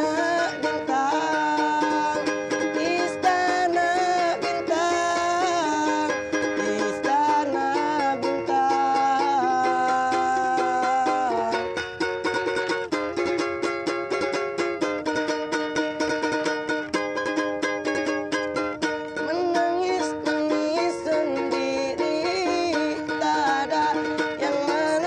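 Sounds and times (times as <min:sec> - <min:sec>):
person singing: 0:00.0 - 0:13.5, 0:18.8 - 0:25.0
ukulele strumming: 0:00.0 - 0:25.0.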